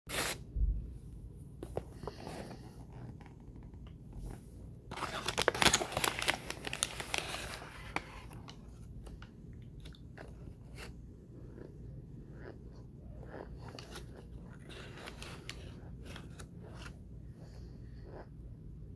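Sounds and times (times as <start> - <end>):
paper liner crinkling: 4.9 - 11.0, 13.6 - 17.0
soft clicks and crunches of eating: 7.9 - 18.3.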